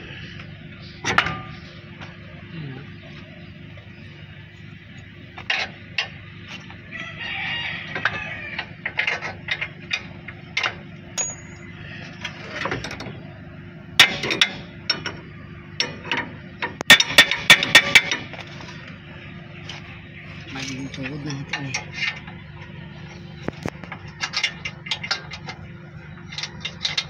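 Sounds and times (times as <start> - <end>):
hand tools clicking and knocking: 7.9 - 11.6.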